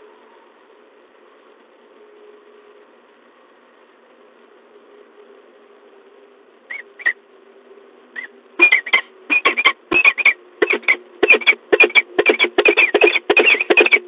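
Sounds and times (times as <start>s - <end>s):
falcon calling: 6.7s - 7.2s, 8.2s - 14.0s.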